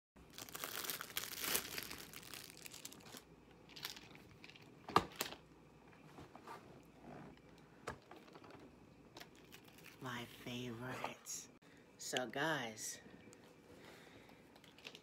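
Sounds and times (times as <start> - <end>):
plastic wrapping crinkling and tearing: 0.2 - 5.4, 9.2 - 10.0.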